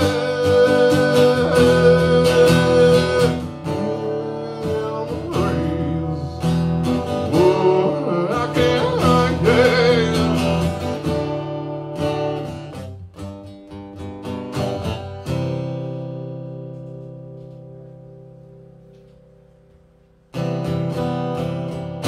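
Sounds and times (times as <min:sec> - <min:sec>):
man singing: 0:00.0 - 0:10.9
strummed guitar: 0:00.0 - 0:22.0.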